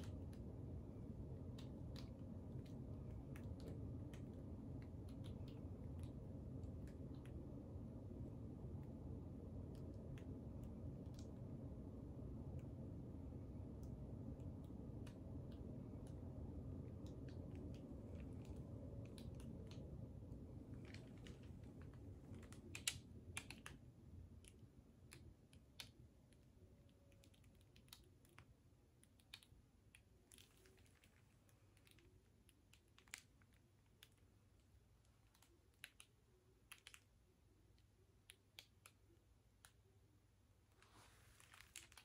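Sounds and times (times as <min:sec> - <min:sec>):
low hum: 0:00.0 - 0:27.8
faint small clicks and taps: 0:00.0 - 0:40.1.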